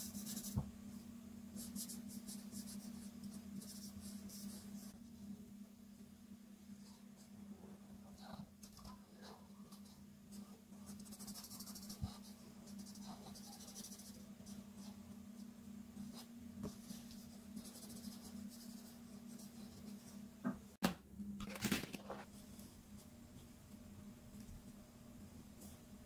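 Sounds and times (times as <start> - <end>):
faint low hum: 0.0 - 26.0
marker scratching on paper: 10.9 - 15.0, 16.1 - 20.1.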